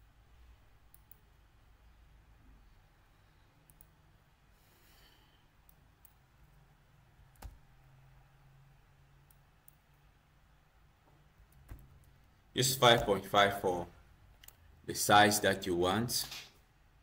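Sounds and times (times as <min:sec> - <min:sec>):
computer mouse clicks: 0:00.9 - 0:01.2, 0:03.6 - 0:04.0, 0:14.4 - 0:14.6
soft breath: 0:04.4 - 0:05.6.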